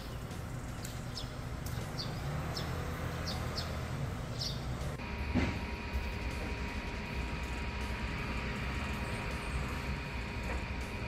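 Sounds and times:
small bird chirping: 0.0s - 4.8s
low outdoor rumble: 0.0s - 11.0s.

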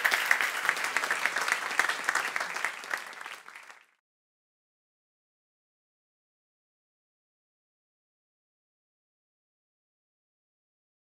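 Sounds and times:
audience applauding: 0.0s - 4.0s.

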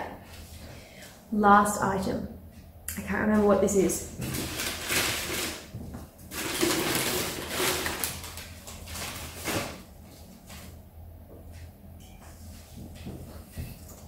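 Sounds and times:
paper wrapping rustling: 4.2s - 9.9s.

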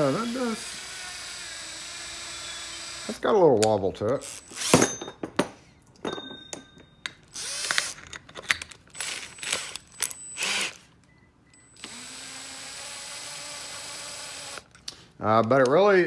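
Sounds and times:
cordless drill spinning: 0.0s - 3.2s, 4.2s - 4.8s, 7.4s - 8.1s, 8.9s - 10.9s, 11.8s - 14.7s.

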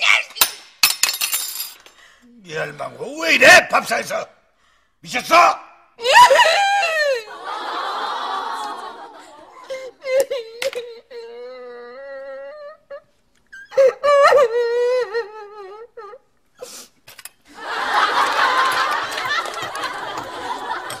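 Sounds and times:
woman wailing and sobbing: 6.0s - 7.4s, 9.5s - 16.3s
audience laughing: 7.2s - 10.4s, 17.5s - 21.0s.

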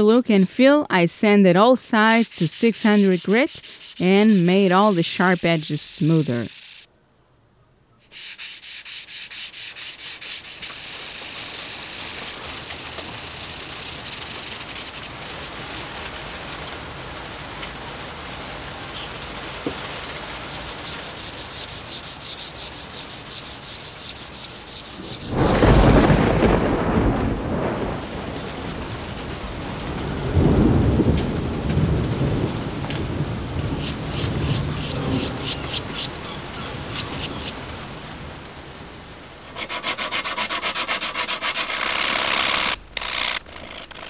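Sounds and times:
metal block rasping on sandpaper: 2.1s - 6.9s, 8.0s - 14.7s, 20.3s - 25.4s, 33.8s - 36.1s, 36.9s - 37.6s, 39.5s - 44.0s
thunder rumbling: 25.2s - 35.4s.

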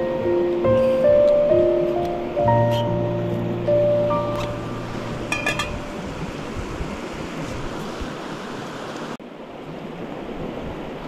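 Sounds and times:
gas stove rushing: 4.2s - 8.2s
metal cup clinking on stove: 5.3s - 5.8s.

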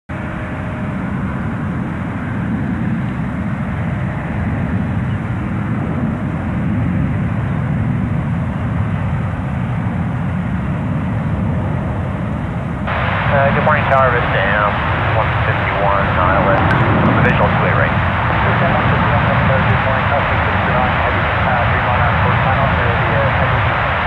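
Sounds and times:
jet engines deep rumble: 0.1s - 24.0s.

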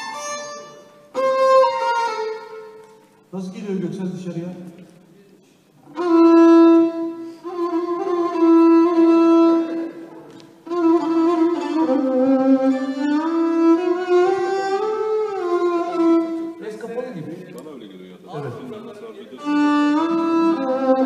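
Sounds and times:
solo violin playing slow notes: 0.0s - 3.3s, 5.9s - 16.7s, 19.4s - 21.0s.

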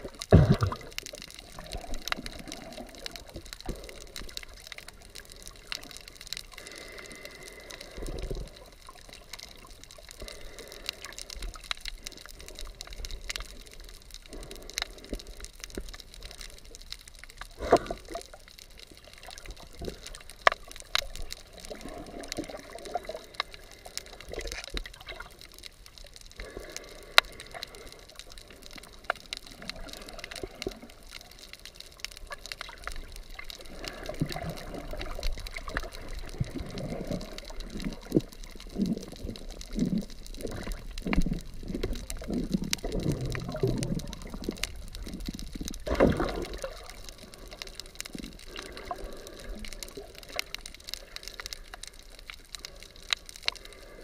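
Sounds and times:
muffled underwater movement: 0.0s - 54.0s
sharp underwater clicks: 0.0s - 54.0s
underwater knocks: 0.3s - 0.9s.

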